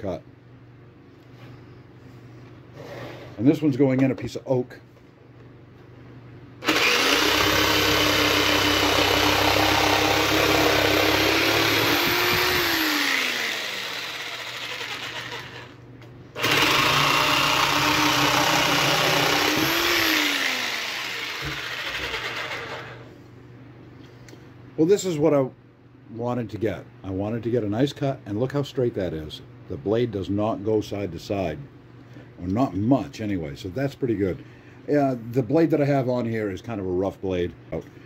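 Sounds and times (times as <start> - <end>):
jigsaw cutting wood: 6.6 - 15.8, 16.4 - 23.1.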